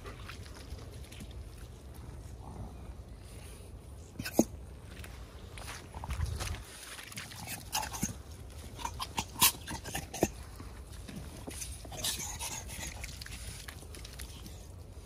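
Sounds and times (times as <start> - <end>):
dogs making small vocal sounds: 4.0 - 4.6, 6.0 - 15.0.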